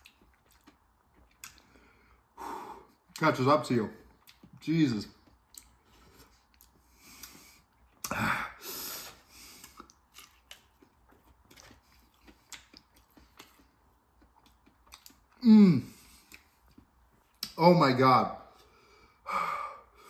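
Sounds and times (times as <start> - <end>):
chewing with mouth clicks: 0.0 - 2.0, 4.0 - 8.2, 9.1 - 15.4, 16.0 - 17.6.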